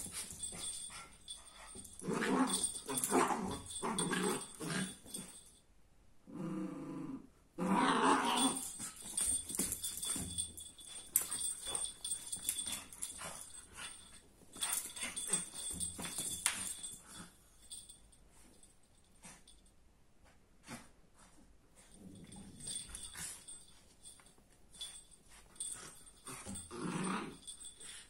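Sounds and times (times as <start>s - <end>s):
puppy growling: 26.4s - 27.6s.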